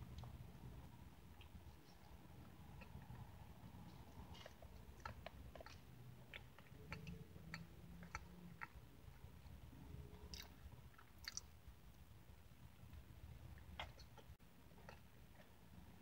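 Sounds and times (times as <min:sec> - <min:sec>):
chewing pie: 0:00.1 - 0:16.0
wet mouth clicks and smacks: 0:10.3 - 0:11.5.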